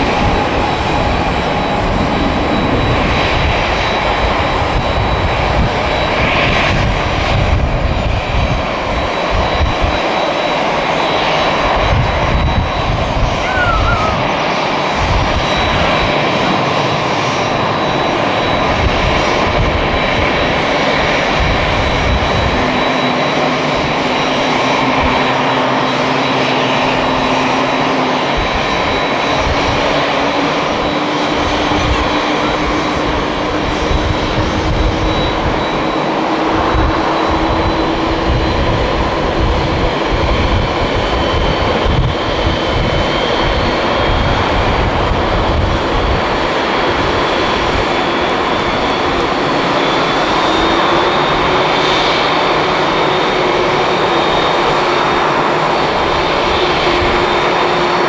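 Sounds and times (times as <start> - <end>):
jet engines whining: 0.0 - 58.0
wind rumbling on microphone: 0.0 - 58.0.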